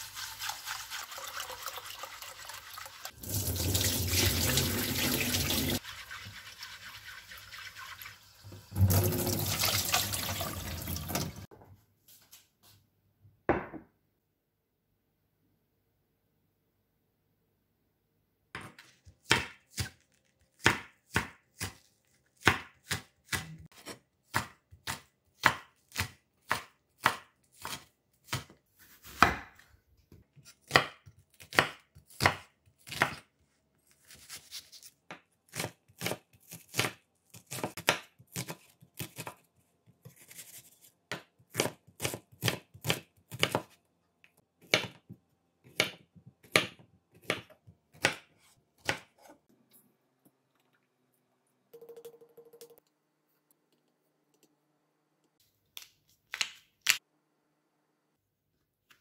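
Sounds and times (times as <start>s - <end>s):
knife chopping on wooden board: 22.4s - 29.6s, 45.7s - 49.4s.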